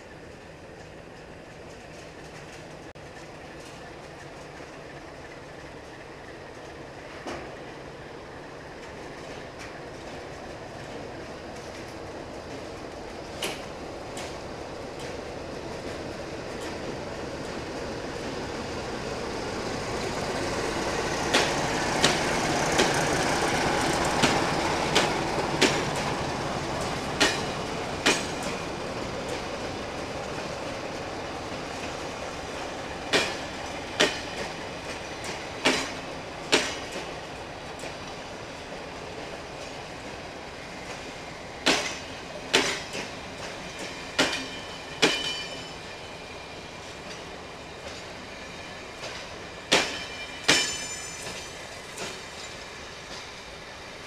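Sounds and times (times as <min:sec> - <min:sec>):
train rolling rumble: 0:00.0 - 0:54.0
train wheels clacking over rail joints: 0:08.8 - 0:18.4, 0:19.8 - 0:32.0, 0:32.9 - 0:37.2, 0:40.8 - 0:45.9, 0:48.9 - 0:53.4.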